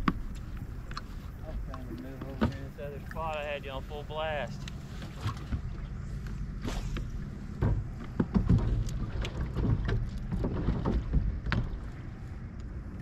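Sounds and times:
waves slapping boat hull: 0:00.0 - 0:13.0
irregular knocks and slaps: 0:06.6 - 0:11.9.

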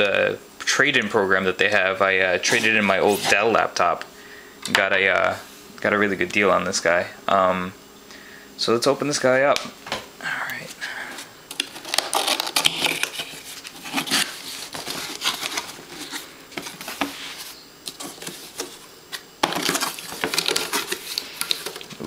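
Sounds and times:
cardboard flaps scraping and rustling: 0:02.4 - 0:03.7, 0:11.6 - 0:22.0.

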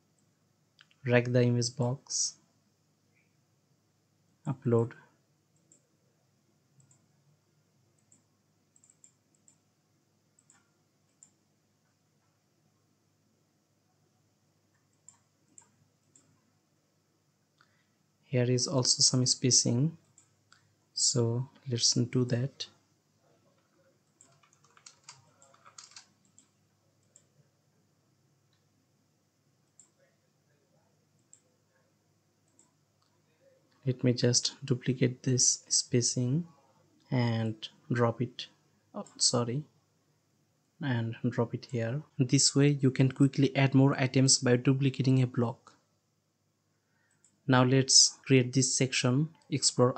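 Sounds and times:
computer mouse clicks: 0:05.6 - 0:05.9, 0:06.8 - 0:07.1, 0:07.9 - 0:09.6, 0:10.4 - 0:11.4, 0:14.7 - 0:16.4, 0:20.0 - 0:20.7, 0:23.6 - 0:27.3, 0:29.6 - 0:30.0, 0:31.2 - 0:31.5, 0:32.5 - 0:33.2.

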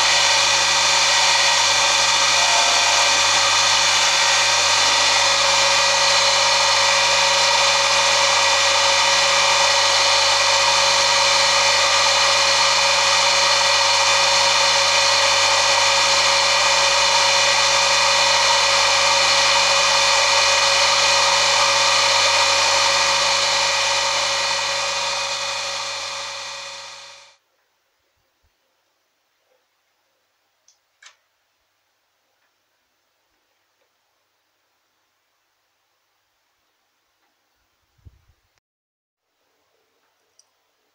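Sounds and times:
polishing motor humming: 0:00.0 - 0:27.4.

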